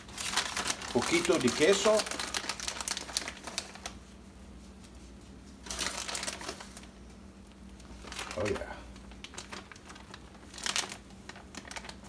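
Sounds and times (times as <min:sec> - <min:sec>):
plastic bag crinkling: 0:00.0 - 0:04.0, 0:05.6 - 0:12.0
faint steady hum: 0:00.0 - 0:12.0.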